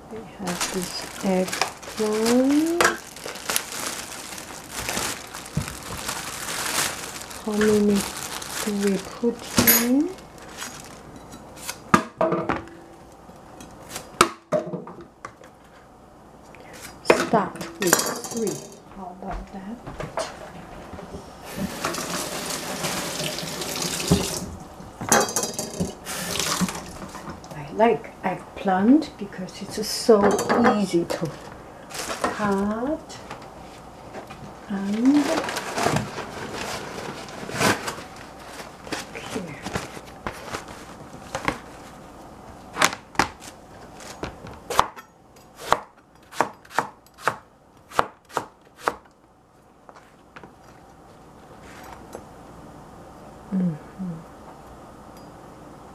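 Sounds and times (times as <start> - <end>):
kitchen tap water running: 21.5 - 24.7, 25.8 - 27.0
knife chopping on cutting board: 45.6 - 49.0.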